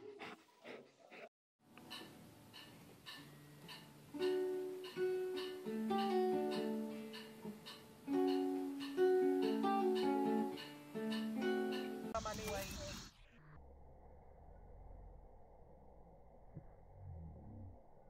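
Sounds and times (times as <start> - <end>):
acoustic guitar picking melody: 1.7 - 12.2.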